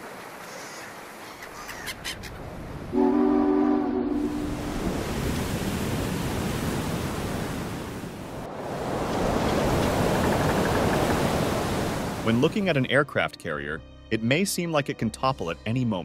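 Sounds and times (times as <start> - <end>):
wind and sea noise: 0.0 - 12.6
ship's horn blast: 2.9 - 4.9.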